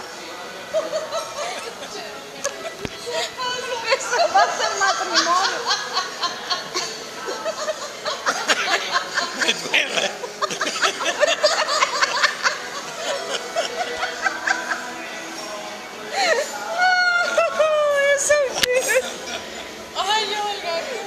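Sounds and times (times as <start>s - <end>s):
man laughing: 0.7s - 1.9s, 5.5s - 14.9s.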